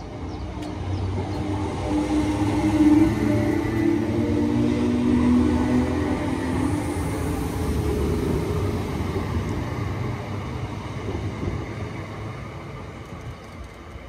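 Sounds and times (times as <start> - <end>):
train rumbling on rails: 0.0 - 14.0.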